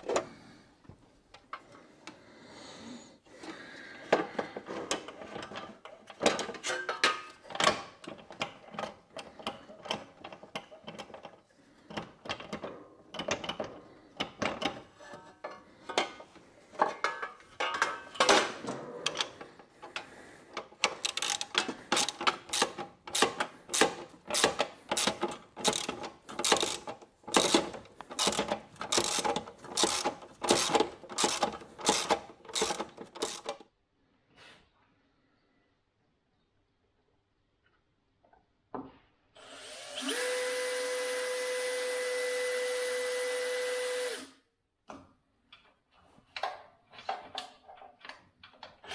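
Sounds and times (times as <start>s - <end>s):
metallic clanks and rattles: 12.0s - 20.0s
socket ratchet clicking: 20.9s - 33.6s.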